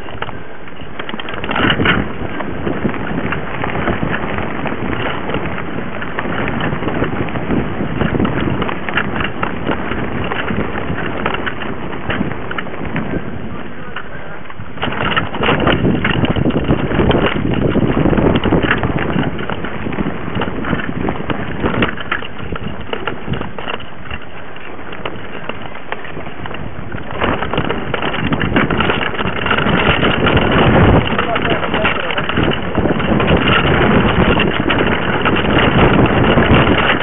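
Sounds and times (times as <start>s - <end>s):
bike rattling and clattering: 0.0s - 37.0s
tyre and trail noise: 0.0s - 37.0s
wind on microphone: 0.0s - 37.0s.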